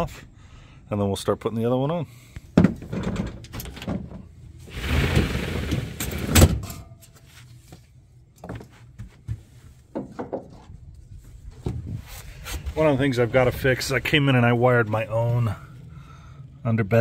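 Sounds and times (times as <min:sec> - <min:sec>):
vinyl cover sliding and scraping: 0:04.6 - 0:06.4.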